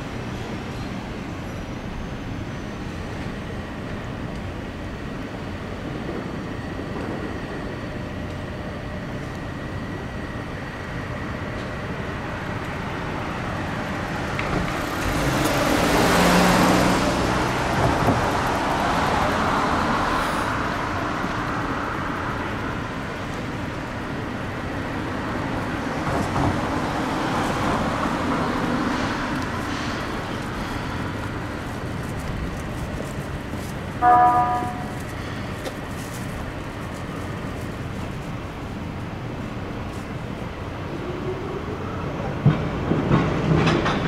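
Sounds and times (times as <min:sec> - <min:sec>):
road traffic: 0:00.0 - 0:44.0
vehicle passing close: 0:14.2 - 0:21.4.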